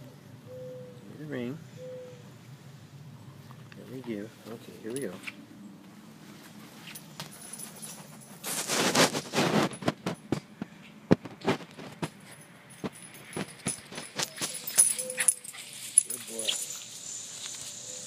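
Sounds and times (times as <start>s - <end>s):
dog scuffling rush: 6.8s - 10.2s.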